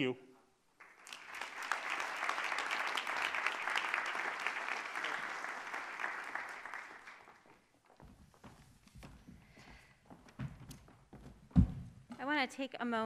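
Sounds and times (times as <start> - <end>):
audience applauding: 0.8 - 7.9
low thumps: 10.4 - 12.2.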